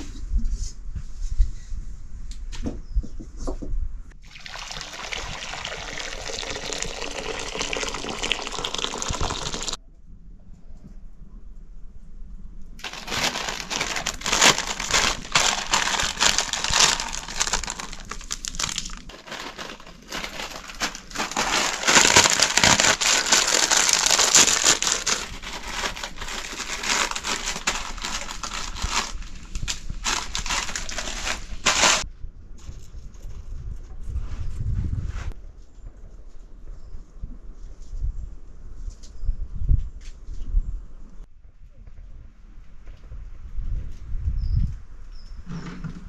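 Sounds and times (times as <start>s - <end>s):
plastic packaging crinkling: 4.4s - 9.8s, 12.8s - 32.0s.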